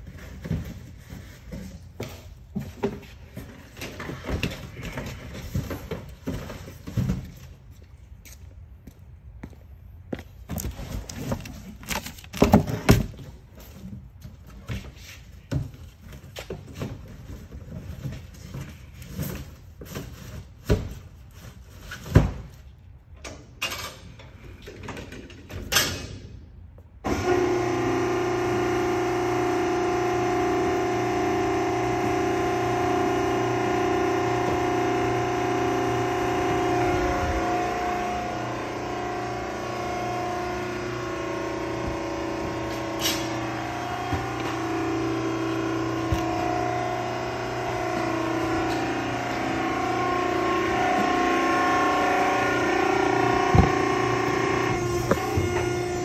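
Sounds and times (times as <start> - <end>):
forklift engine humming: 27.0 - 56.0.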